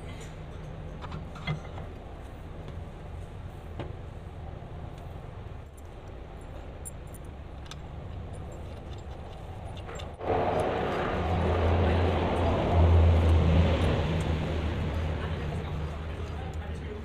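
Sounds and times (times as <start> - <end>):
small metal clinks: 5.7 - 10.2
loud machine running: 10.2 - 16.4.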